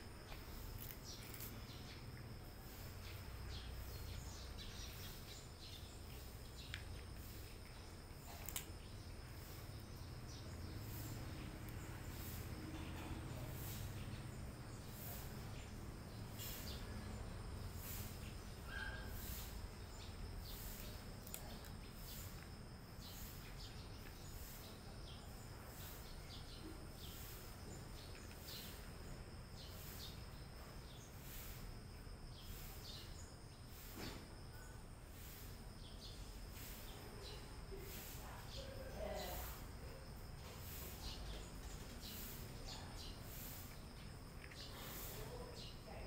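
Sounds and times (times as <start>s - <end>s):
insects chirping: 0.0s - 46.0s
cat crunching dry snacks: 0.4s - 2.2s, 6.7s - 8.7s.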